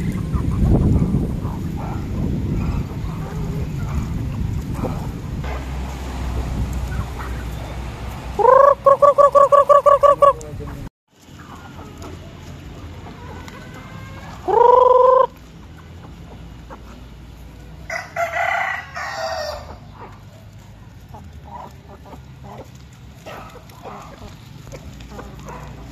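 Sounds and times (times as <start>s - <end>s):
chickens clucking: 0.0s - 25.9s
chicken calling: 6.8s - 10.8s, 12.9s - 17.0s
rooster crowing: 17.9s - 19.9s.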